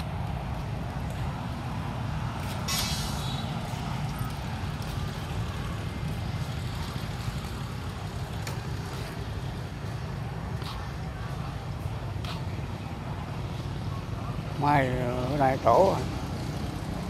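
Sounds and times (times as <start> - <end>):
outdoor background rumble: 0.0 - 17.0
short hiss: 2.7 - 3.4.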